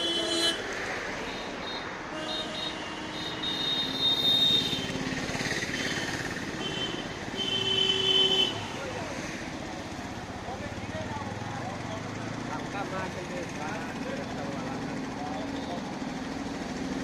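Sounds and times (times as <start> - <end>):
vehicle horn: 0.0 - 0.6, 1.2 - 5.0, 5.8 - 8.7
road traffic noise: 0.0 - 17.0.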